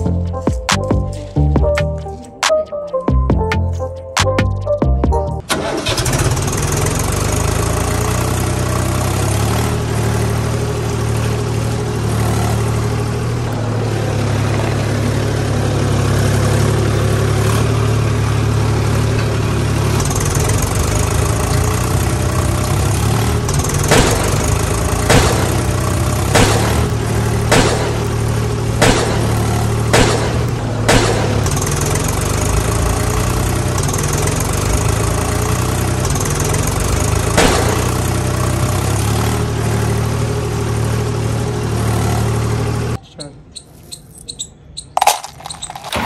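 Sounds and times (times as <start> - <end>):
music: 0.0 - 5.4
tractor engine idling: 5.4 - 43.3.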